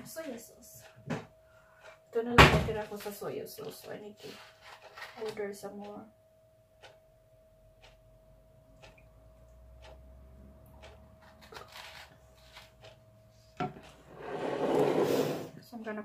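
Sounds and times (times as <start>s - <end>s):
faint steady hum: 0.0s - 11.5s.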